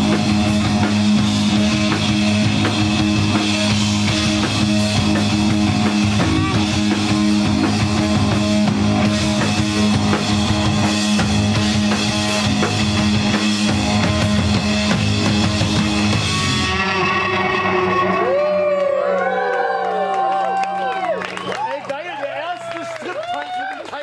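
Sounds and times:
drum kit and cymbals: 0.0 - 17.0
electric bass: 0.0 - 19.9
electric guitar: 0.0 - 21.2.

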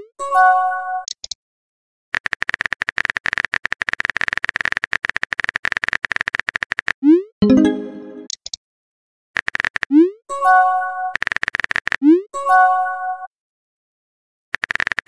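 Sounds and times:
keyboard typing clicks: 1.0 - 1.4
high blips: 7.4 - 8.3
short musical chime: 7.4 - 8.3.

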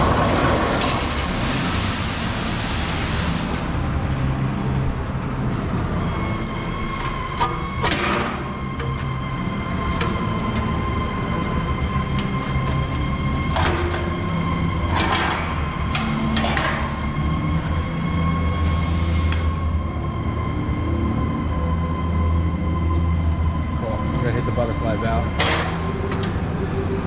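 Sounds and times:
constant whine: 0.0 - 27.0.

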